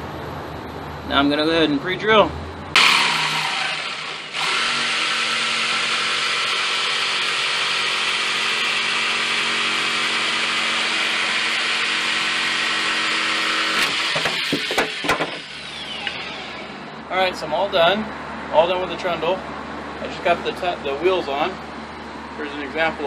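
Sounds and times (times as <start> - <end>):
jigsaw cutting wood: 2.8 - 16.8
knocks: 13.8 - 15.5.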